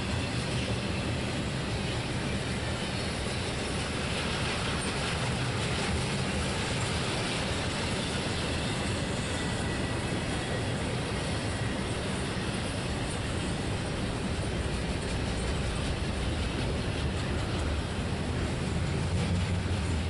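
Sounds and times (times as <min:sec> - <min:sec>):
freight train wheels rumbling: 0:00.0 - 0:20.0.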